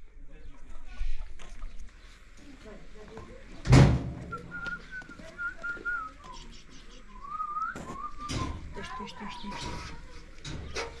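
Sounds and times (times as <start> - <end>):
loud thump: 3.7 - 4.3.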